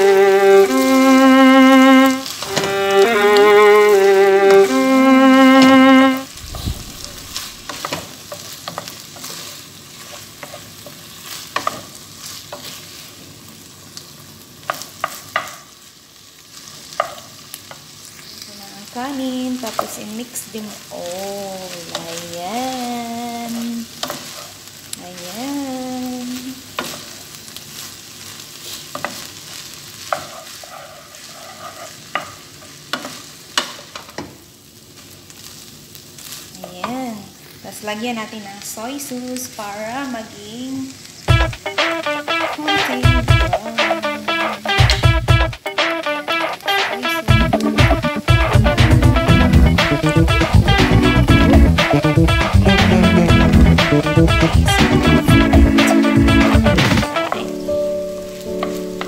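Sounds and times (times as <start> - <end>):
low sizzle of frying: 0.0 - 59.0
spatula scraping frying pan: 0.7 - 12.9, 23.6 - 24.7, 30.0 - 33.7
spatula stirring rice in pan: 7.3 - 13.3, 14.6 - 15.8, 16.4 - 18.4, 23.5 - 25.3, 26.6 - 34.3, 35.0 - 37.0.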